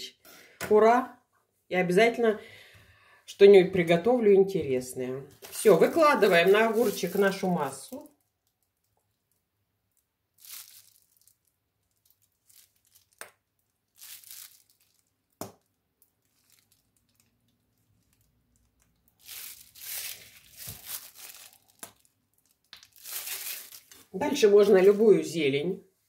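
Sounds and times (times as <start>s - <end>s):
plastic bag crinkling: 5.4s - 8.9s, 10.3s - 15.4s, 16.1s - 25.0s.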